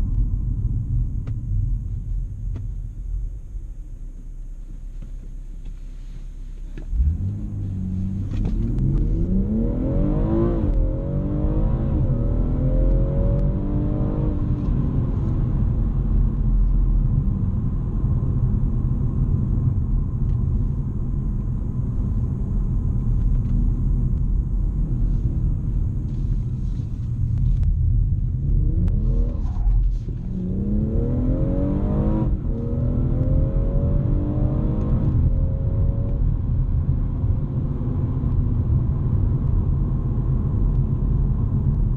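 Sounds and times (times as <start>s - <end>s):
road noise: 0.0s - 41.9s
car engine revving under acceleration: 6.6s - 41.9s.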